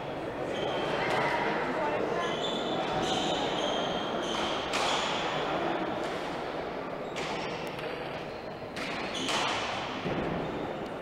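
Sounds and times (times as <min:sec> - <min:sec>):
background crowd hubbub: 0:00.0 - 0:11.0
ball smacking walls echoing: 0:08.7 - 0:10.8.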